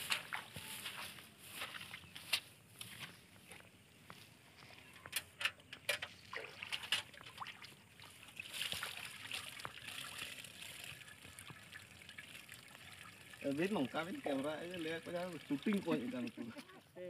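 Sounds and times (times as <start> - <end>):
water trickling and splashing: 0.0 - 2.1, 5.8 - 17.0.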